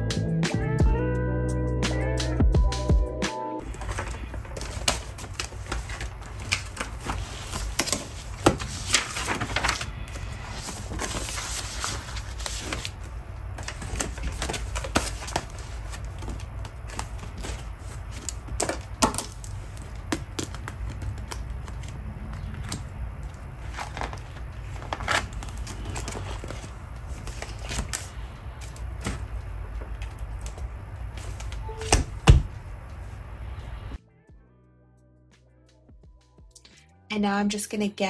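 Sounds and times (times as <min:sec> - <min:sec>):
steady low hum: 0:03.6 - 0:34.0.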